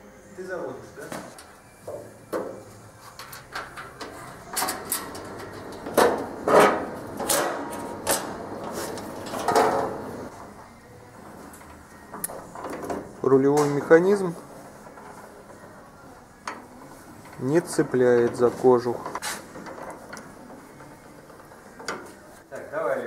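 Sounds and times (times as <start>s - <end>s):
scraping and knocking clatter: 3.2s - 10.3s, 17.2s - 22.2s.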